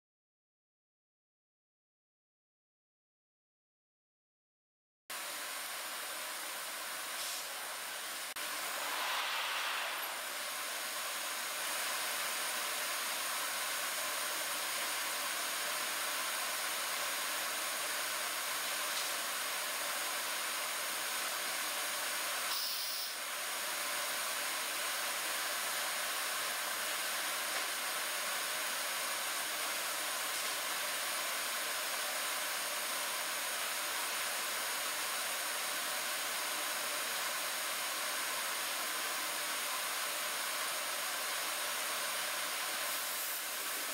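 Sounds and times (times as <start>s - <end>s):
faint high whine: 7.4s - 12.7s
router hissing and whirring: 42.4s - 43.9s.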